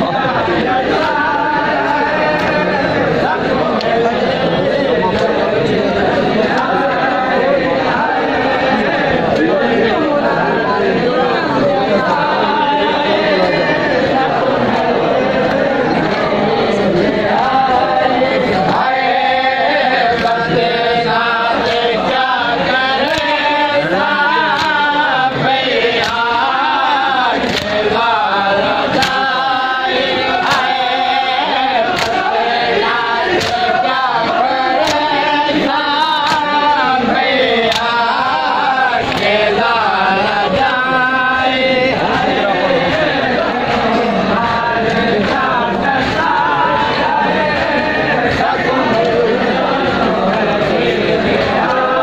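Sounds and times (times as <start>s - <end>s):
men chanting in unison: 0.0s - 52.0s
hand strikes on bare chests: 23.0s - 25.0s, 25.9s - 28.0s, 28.9s - 29.4s, 30.4s - 31.2s, 31.9s - 39.4s.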